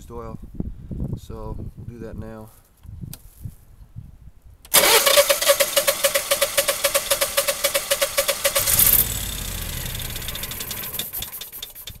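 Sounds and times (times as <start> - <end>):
generator engine cranking: 4.7 - 12.0.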